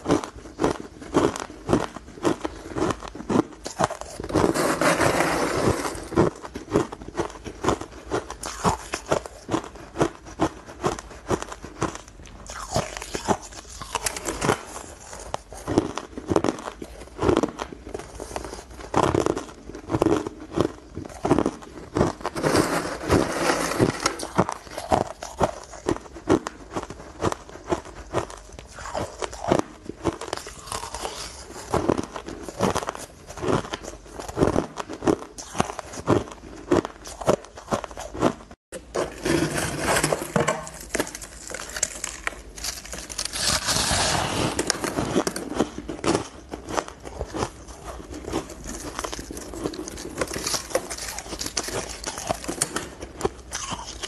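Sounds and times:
crushed ice chewed: 0.0s - 54.0s
metal spoon scraping ice: 3.7s - 6.4s, 22.2s - 25.7s, 38.8s - 45.8s, 48.1s - 53.0s.

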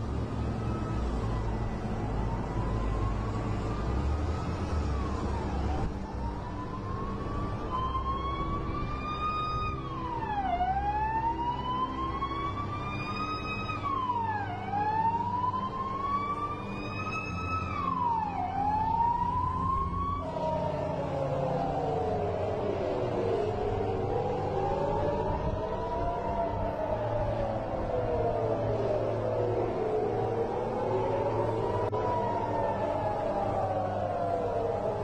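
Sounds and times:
lower siren sliding down: 0.0s - 35.0s
warning siren wailing: 0.0s - 35.0s.

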